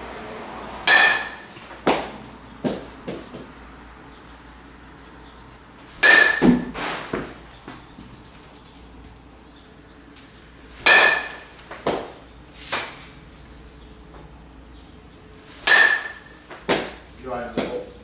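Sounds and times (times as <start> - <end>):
metal bat hitting ball: 0.8 - 3.5, 6.0 - 7.4, 10.8 - 13.0, 15.6 - 17.0.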